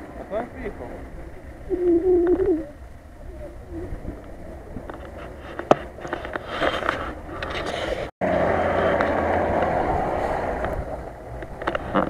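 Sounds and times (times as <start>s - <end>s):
engine churning through mud: 7.8s - 12.0s.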